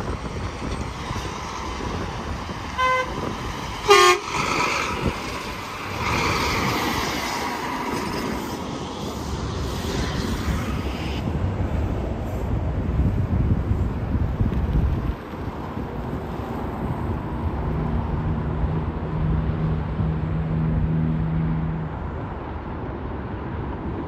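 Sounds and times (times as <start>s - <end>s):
highway traffic passing: 0.0s - 24.0s
truck horn: 2.8s - 4.5s.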